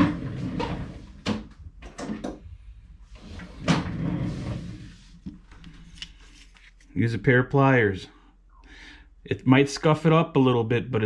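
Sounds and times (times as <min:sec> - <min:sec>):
drawer sliding open: 0:00.0 - 0:02.3, 0:03.1 - 0:06.0.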